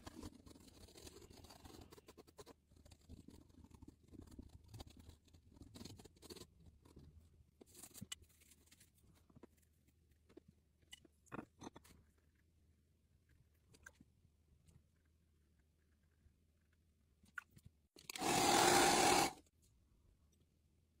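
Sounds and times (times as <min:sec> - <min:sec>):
pen scratching and tapping on paper: 0:00.0 - 0:09.6.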